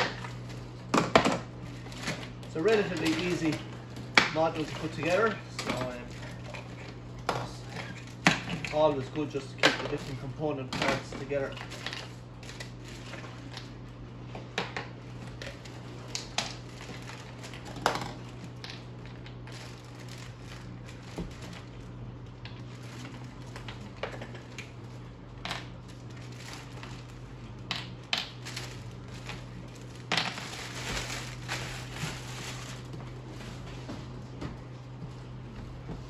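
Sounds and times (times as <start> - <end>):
low hum: 0.0 - 36.0
plastic bags crinkling: 1.6 - 6.8, 7.6 - 13.7, 15.2 - 24.9, 25.7 - 33.6.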